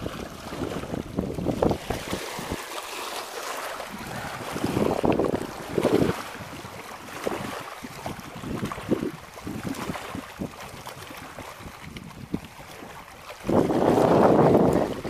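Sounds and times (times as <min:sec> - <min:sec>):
wind on microphone: 0:00.0 - 0:02.8, 0:03.4 - 0:15.0
small waves lapping: 0:00.0 - 0:15.0.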